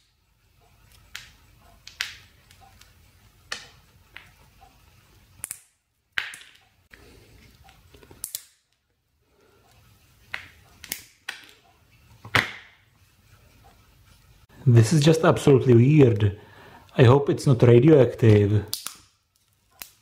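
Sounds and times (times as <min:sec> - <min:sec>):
pliers cracking plastic: 0:08.0 - 0:08.8, 0:18.3 - 0:20.0.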